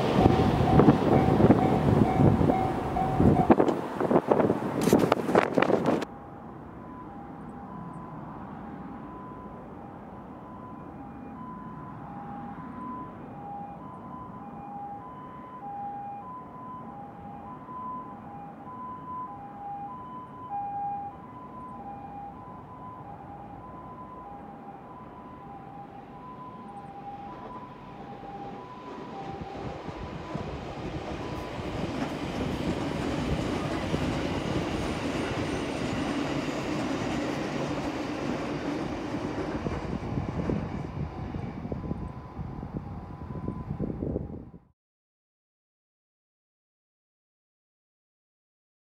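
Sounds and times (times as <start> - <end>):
wheel and rail noise: 0.0 - 6.1, 24.4 - 43.7
train rumbling: 0.0 - 10.8, 22.5 - 44.3
distant two-tone ambulance siren: 0.0 - 44.7.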